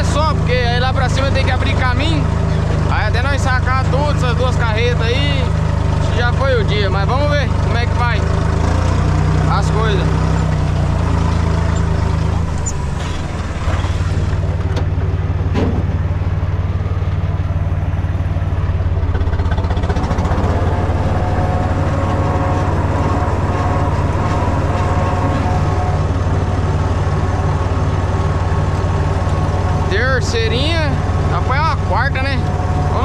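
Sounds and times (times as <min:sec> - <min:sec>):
tractor engine running: 0:00.0 - 0:33.0.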